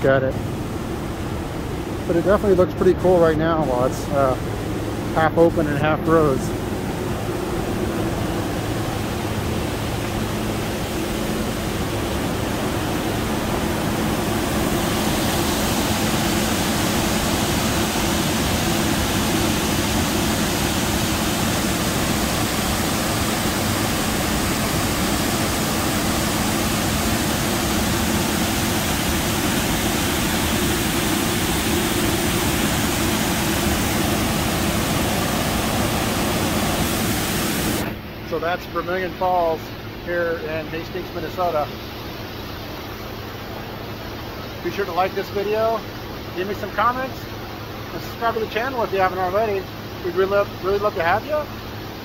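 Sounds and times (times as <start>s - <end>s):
water pouring over waterfall: 13.2s - 37.8s.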